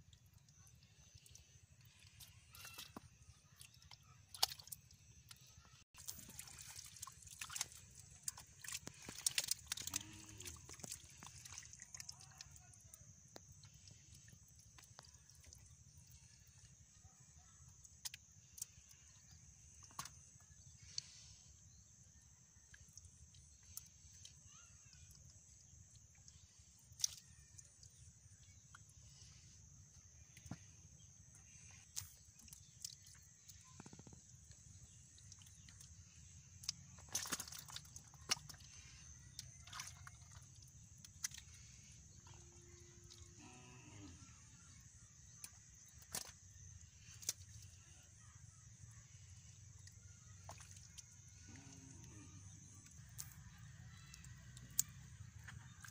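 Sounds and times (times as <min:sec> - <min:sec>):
fish splashing in mud and water: 0:00.0 - 0:17.0, 0:22.6 - 0:43.3, 0:44.6 - 0:48.2, 0:48.8 - 0:51.6.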